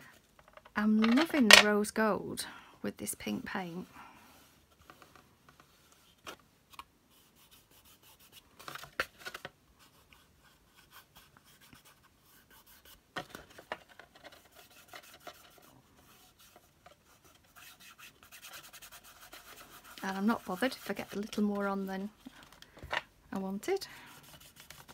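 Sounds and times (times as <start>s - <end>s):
wax rubbing on board: 14.3s - 22.1s, 24.1s - 24.9s.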